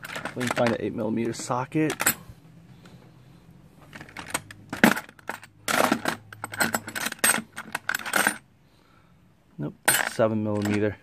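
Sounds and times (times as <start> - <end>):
metal tools rattling in toolbox: 0.0 - 2.3, 3.8 - 8.5, 9.9 - 11.0.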